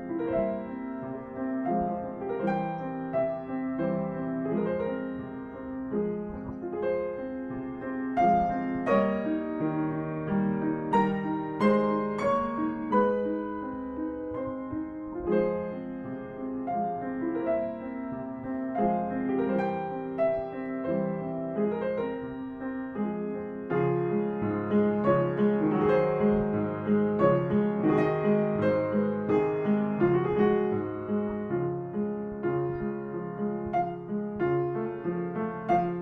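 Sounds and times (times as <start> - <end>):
piano music: 0.0 - 36.0.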